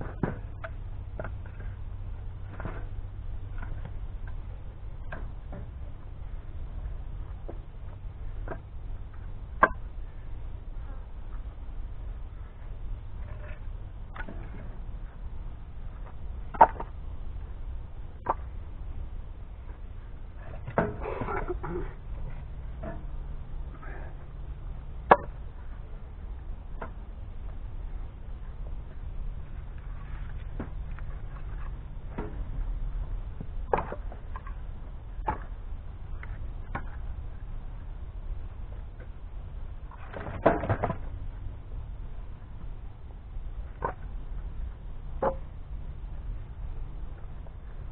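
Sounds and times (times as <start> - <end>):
low rumble: 0.0 - 47.9
firewood pieces knocking together: 16.5 - 16.9, 25.1 - 25.3.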